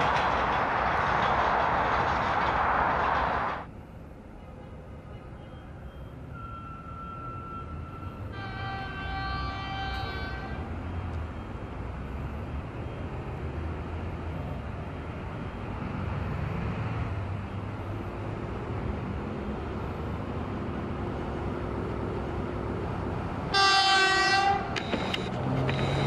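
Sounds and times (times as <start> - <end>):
low rumble of train: 0.0 - 26.0
locomotive horn: 6.3 - 10.7, 23.5 - 24.8.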